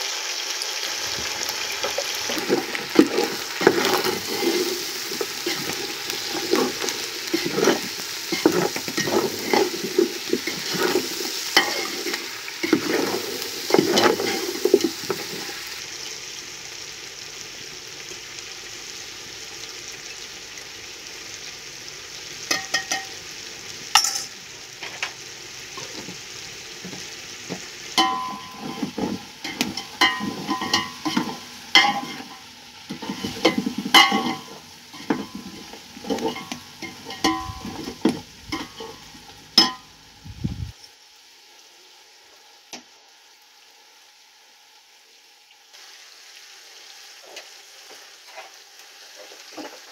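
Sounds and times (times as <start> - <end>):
meat sizzling: 0.0 - 49.9
metal ladle scraping a steel pot: 1.9 - 15.5, 28.0 - 39.8.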